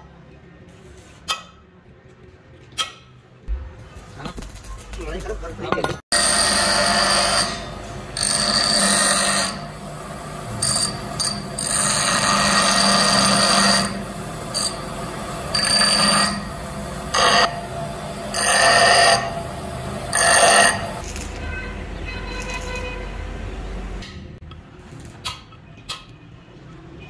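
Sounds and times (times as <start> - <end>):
steel rod grinding screech: 6.1 - 10.0, 10.6 - 21.3
bench grinder humming: 6.1 - 21.0.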